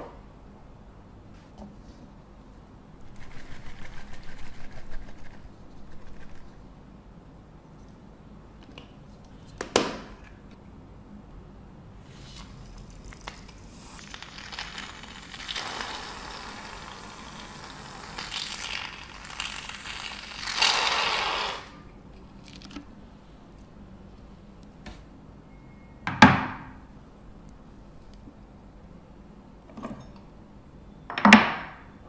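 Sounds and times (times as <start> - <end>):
shaving foam hissing from can: 13.2 - 21.8.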